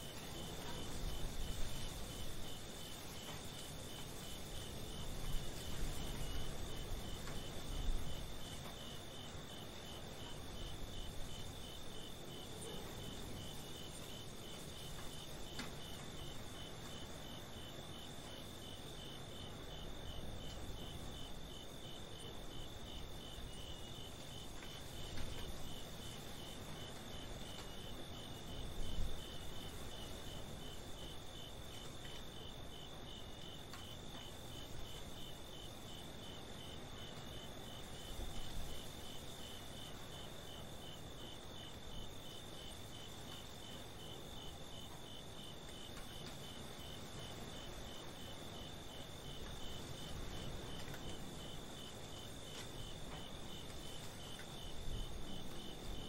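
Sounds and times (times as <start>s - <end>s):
crickets chirping: 0.0s - 56.0s.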